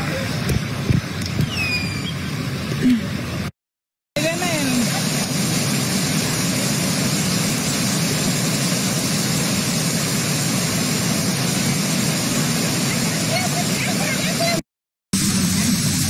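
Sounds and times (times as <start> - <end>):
floodwater rushing: 4.2 - 14.6
heavy rain pouring: 4.2 - 14.6.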